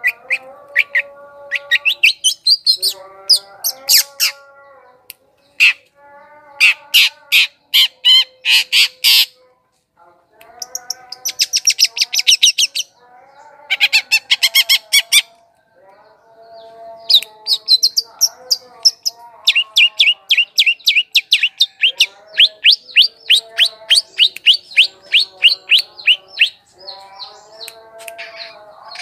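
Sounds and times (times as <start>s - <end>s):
bird chattering and trilling: 0.0s - 4.7s, 10.5s - 15.4s, 16.4s - 29.0s.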